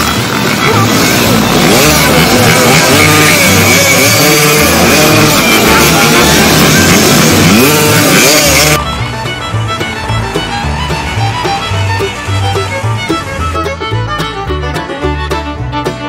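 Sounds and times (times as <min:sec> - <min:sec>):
motorcycle engines revving: 0:00.0 - 0:13.9
music with steady beat: 0:07.3 - 0:16.0.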